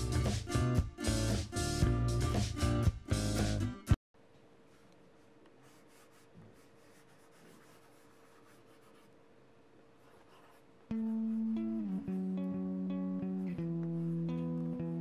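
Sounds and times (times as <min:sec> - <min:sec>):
guitar and drums music: 0:00.0 - 0:04.0.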